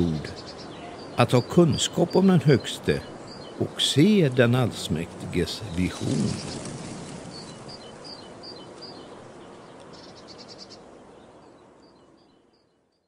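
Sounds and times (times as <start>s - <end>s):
small birds chirping: 0.0s - 13.0s
soft hiss: 0.0s - 13.0s.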